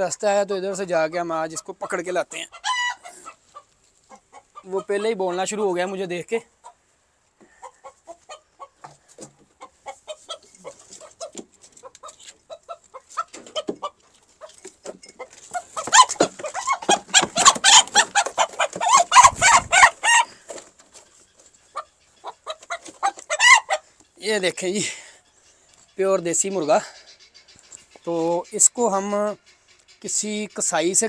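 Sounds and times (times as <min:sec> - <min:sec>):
rooster clucking: 0:00.7 - 0:31.0
rooster squawking: 0:01.6 - 0:05.5, 0:15.2 - 0:20.6, 0:21.7 - 0:23.9
scuffling: 0:10.1 - 0:21.8.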